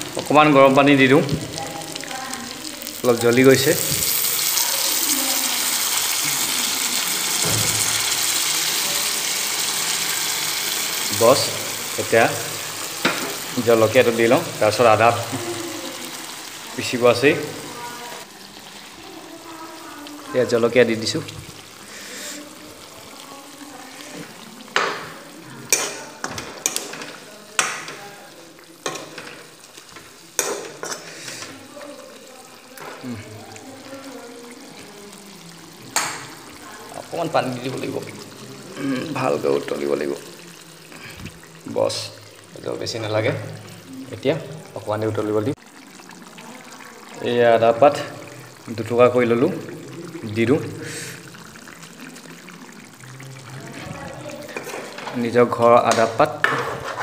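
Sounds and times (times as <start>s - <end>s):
curry sizzling: 0.0s - 57.0s
water hissing in hot oil: 0.0s - 57.0s
steel ladle scraping pan: 54.5s - 57.0s.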